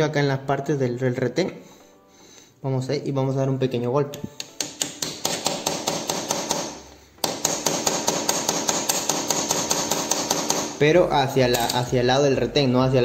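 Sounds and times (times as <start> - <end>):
screwdriver tapping on metal: 4.3 - 10.8, 11.4 - 11.9.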